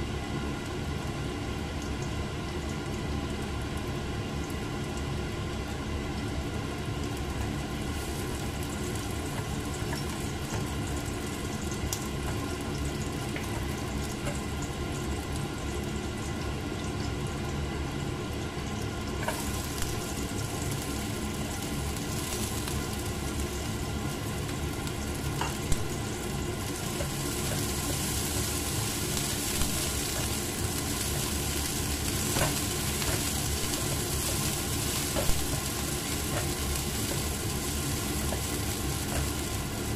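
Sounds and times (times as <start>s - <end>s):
garlic sizzling in hot oil: 0.0s - 39.9s
spatula stirring a pan: 7.4s - 14.6s, 19.2s - 39.9s.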